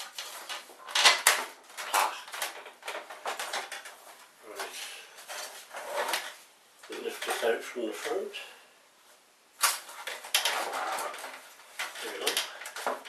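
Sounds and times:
printer parts clattering and clicking: 0:00.0 - 0:04.0, 0:09.6 - 0:13.0.

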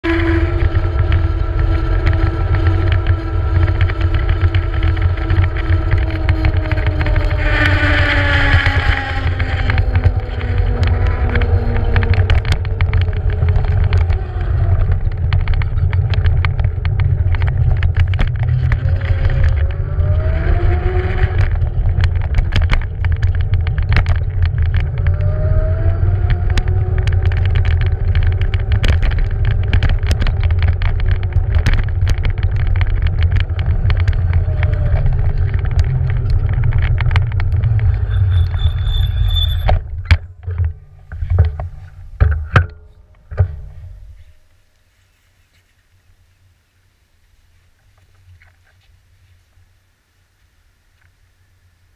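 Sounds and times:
wheels clicking over paving joints: 0:00.0 - 0:44.7
road rumble: 0:00.0 - 0:51.9
wind: 0:00.0 - 0:51.9
high squeal: 0:37.7 - 0:39.8.

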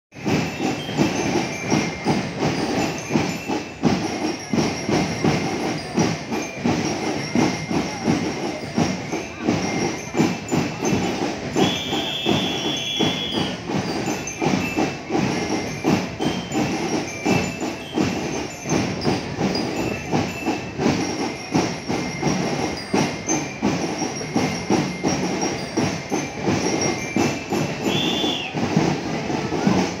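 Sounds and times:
marching band drums: 0:00.1 - 0:30.0
short high whistle blast: 0:11.6 - 0:13.6, 0:27.8 - 0:28.6.

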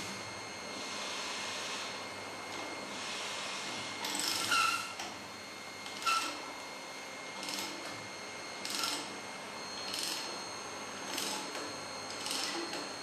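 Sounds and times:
ratchet wrench ratcheting: 0:12.2 - 0:12.6.

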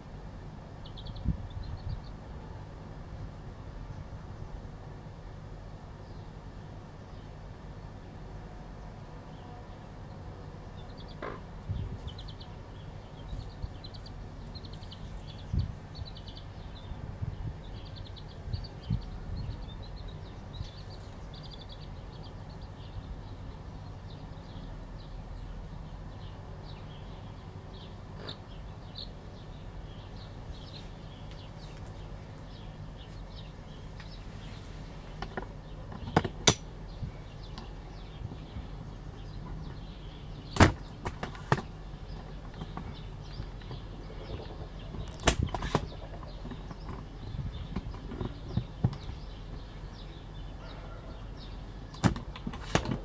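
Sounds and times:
steady low rumble: 0:00.0 - 0:41.0
chicks peeping: 0:00.8 - 0:02.2, 0:10.8 - 0:25.1, 0:36.9 - 0:52.4.

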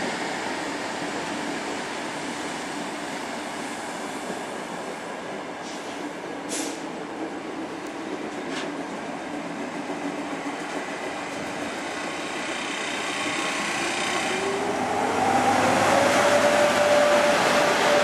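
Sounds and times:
locomotive whine rising in pitch: 0:12.6 - 0:18.0.

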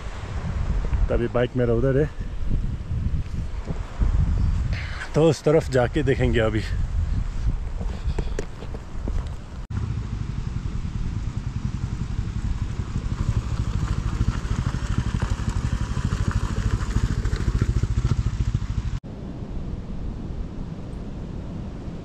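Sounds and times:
motorcycle engine thumping: 0:07.8 - 0:10.3.

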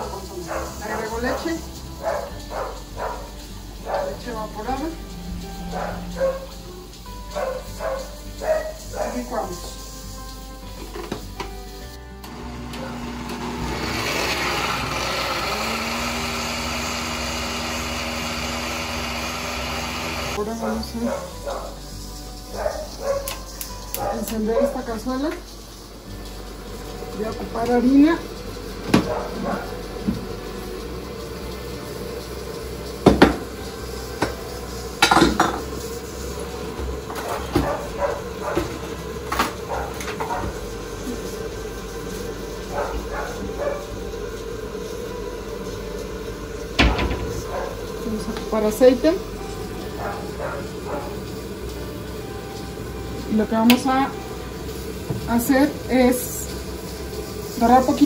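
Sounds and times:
blender running: 0:12.1 - 0:20.5, 0:26.1 - 0:37.6, 0:38.2 - 0:58.0
kitchen utensils clinking: 0:32.3 - 0:41.3.

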